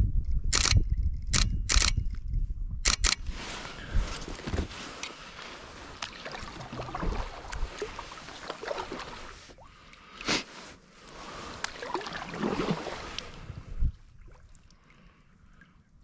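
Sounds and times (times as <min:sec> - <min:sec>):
paddle strokes in water: 0:03.3 - 0:15.2.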